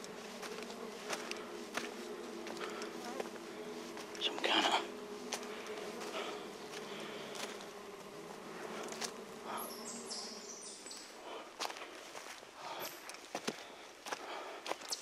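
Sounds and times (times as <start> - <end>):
footfalls on leaf litter: 0.0 - 9.2
insect-like buzzing drone: 0.0 - 14.6.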